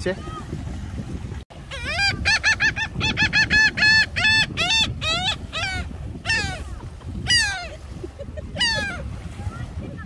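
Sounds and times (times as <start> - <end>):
gull calling: 1.6 - 7.9, 8.5 - 9.1.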